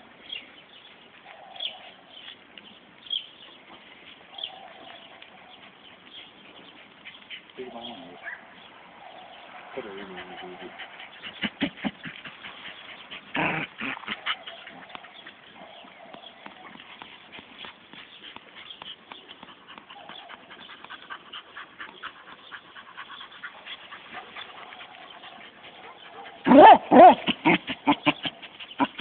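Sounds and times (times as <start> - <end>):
dog huffing: 9.1 - 29.0
dog sniffing: 9.8 - 29.0.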